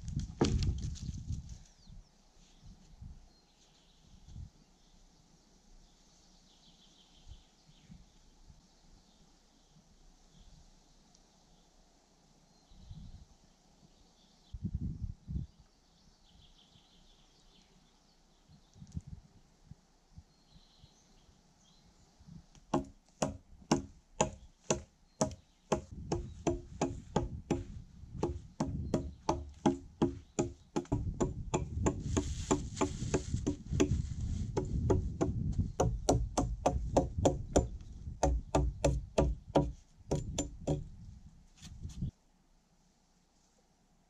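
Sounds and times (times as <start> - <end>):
hatchet chopping log: 22.7 - 34.0, 34.6 - 40.9.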